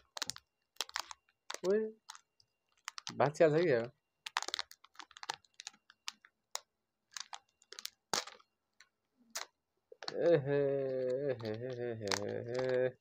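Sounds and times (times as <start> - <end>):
foil snack pouch crackling: 0.0 - 13.0
man speaking: 1.6 - 2.0, 3.1 - 3.9, 10.1 - 13.0.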